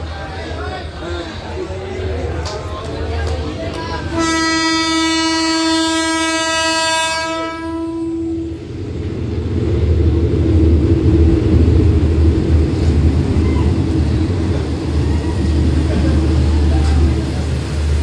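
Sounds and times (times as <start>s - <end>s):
locomotive engine rumble: 0.0s - 18.0s
locomotive horn blast: 4.1s - 8.6s.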